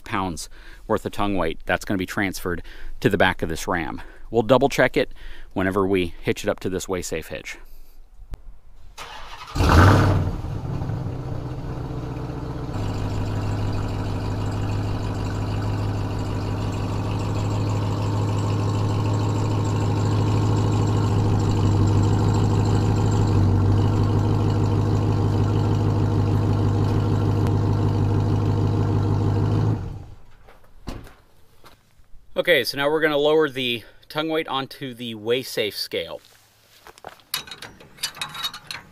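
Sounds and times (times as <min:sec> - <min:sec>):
truck engine starting and idling: 0:08.9 - 0:30.5, 0:37.2 - 0:38.9.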